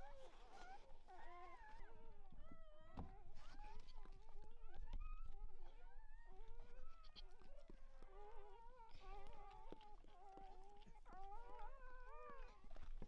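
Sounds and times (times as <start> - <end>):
puppies whimpering: 5.7 - 12.8.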